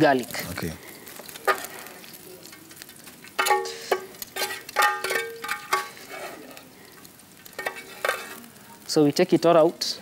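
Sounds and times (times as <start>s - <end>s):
chicken sizzling: 0.0s - 10.0s
metal utensil clinking on pan: 1.4s - 1.8s, 3.4s - 6.4s, 7.5s - 8.5s.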